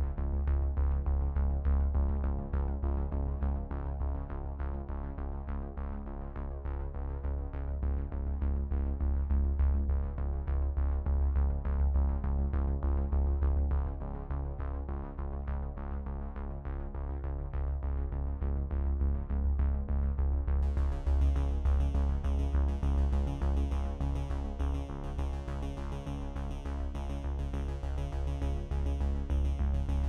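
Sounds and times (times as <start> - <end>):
electronic music with deep bass: 18.4 - 30.0.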